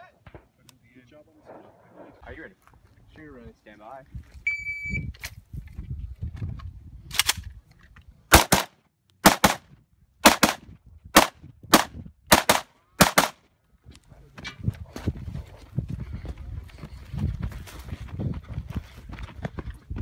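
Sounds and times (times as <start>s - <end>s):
rifle shots: 8.3s - 10.6s, 11.2s - 13.4s.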